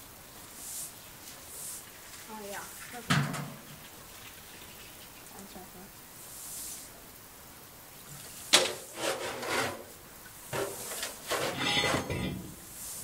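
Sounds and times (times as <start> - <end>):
rough scraping strokes: 8.6 - 13.0.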